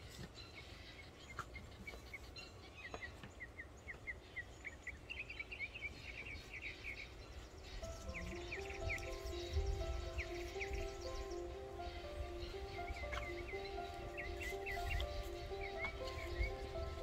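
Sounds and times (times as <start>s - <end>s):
bird chirping: 0.0s - 17.0s
low wind rumble: 3.6s - 17.0s.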